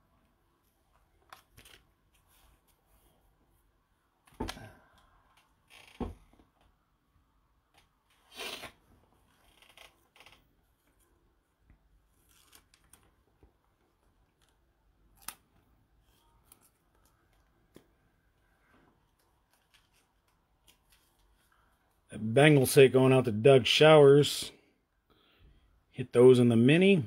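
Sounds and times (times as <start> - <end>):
card rustling and clicking: 1.1 - 2.8, 12.2 - 18.0, 19.0 - 21.5.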